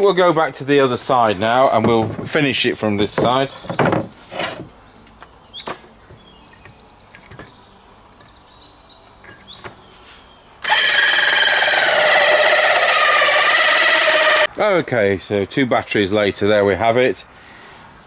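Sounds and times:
birds chirping: 0.0 - 14.5
drill cutting into plywood: 10.6 - 14.5.

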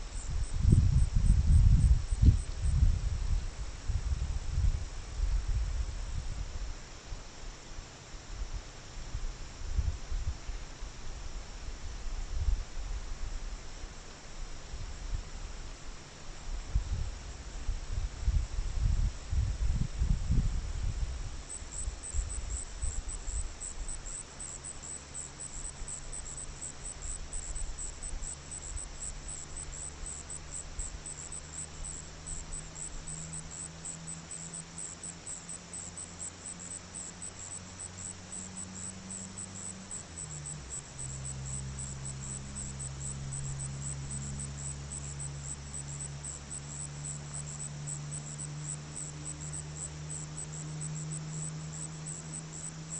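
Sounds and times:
crickets chirping: 0.0 - 3.7, 17.6 - 52.9
steady low hum: 0.0 - 52.9.

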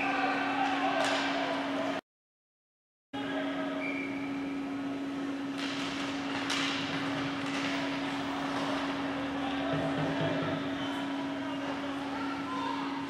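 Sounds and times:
steady mechanical hum: 3.2 - 13.0.

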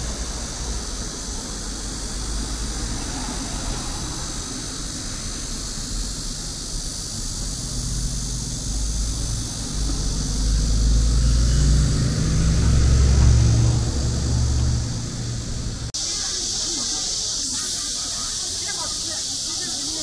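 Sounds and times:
vehicle engine rumble passing: 0.0 - 16.0
background hiss: 0.0 - 20.0.

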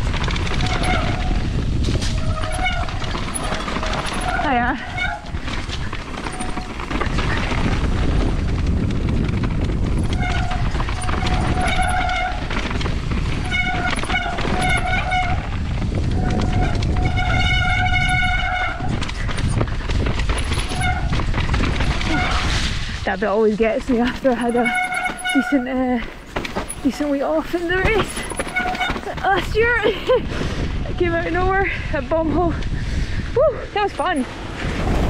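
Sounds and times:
high whine from bike: 0.0 - 23.0
tyres rumbling on dirt: 0.0 - 32.6
wind on microphone: 0.0 - 35.0.

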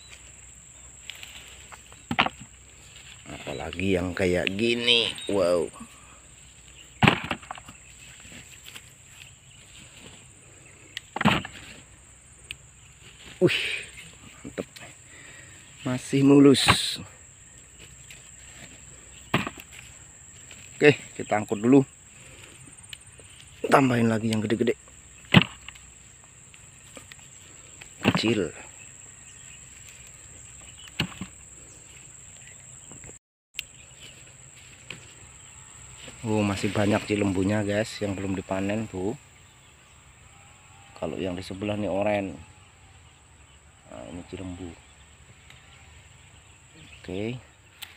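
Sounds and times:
high-pitched insect drone: 0.0 - 47.9
dull thump: 7.0 - 7.8, 19.3 - 19.6.

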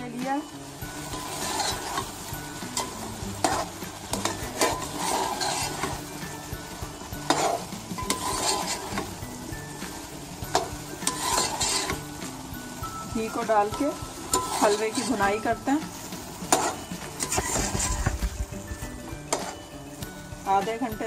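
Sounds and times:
ghee sizzling: 0.0 - 21.0
metal spoon scraping steel pot: 1.1 - 6.0, 7.2 - 9.1, 10.5 - 12.1, 14.3 - 15.3, 16.5 - 18.2, 19.3 - 19.7.

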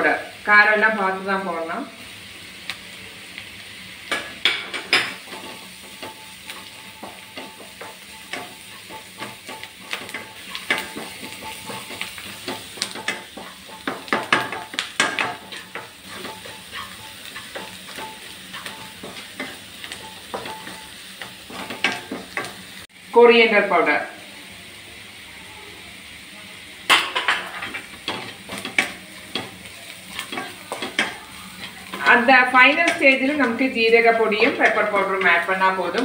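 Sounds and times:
onions sizzling in oil: 0.0 - 36.0
wooden spatula scraping pan: 4.8 - 22.5.

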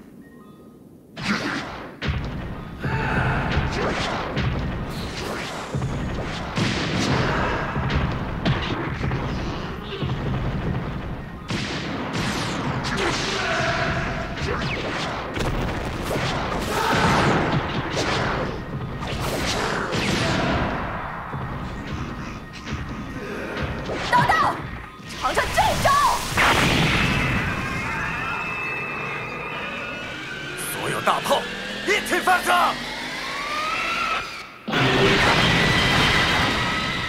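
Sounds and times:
heavy booms and thuds: 1.7 - 25.0.

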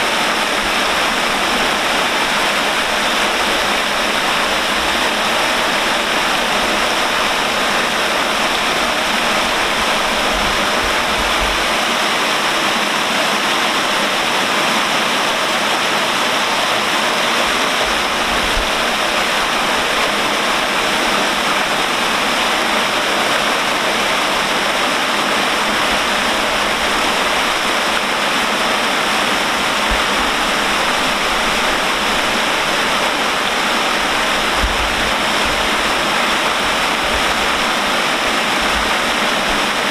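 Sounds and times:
water splashing into canal: 0.0 - 39.9.

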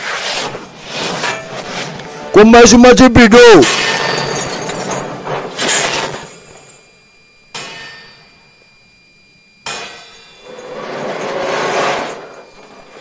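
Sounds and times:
loud crash: 0.0 - 2.4, 3.6 - 6.8, 9.7 - 12.5
ringing metallic strikes: 3.6 - 13.0.

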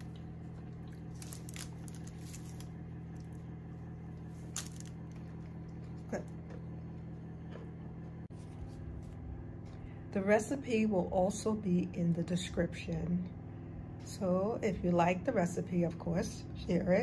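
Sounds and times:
crisp bread crackling: 0.0 - 5.6
steady low room hum: 0.0 - 17.0.

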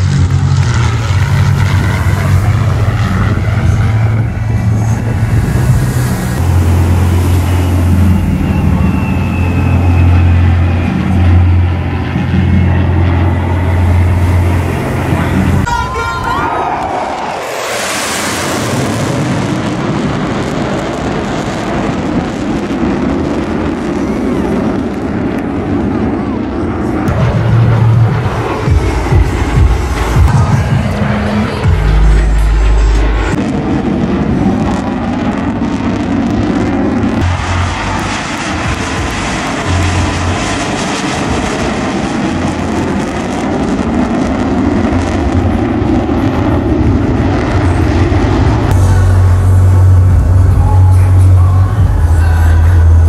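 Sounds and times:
jet engines rumbling overhead: 0.0 - 53.0.

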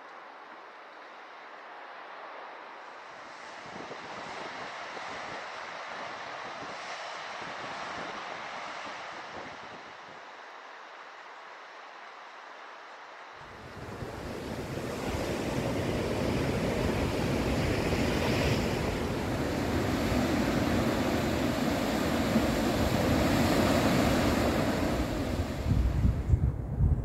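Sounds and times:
sea surf washing on shore: 1.3 - 26.3
wind buffeting microphone: 13.5 - 27.0.

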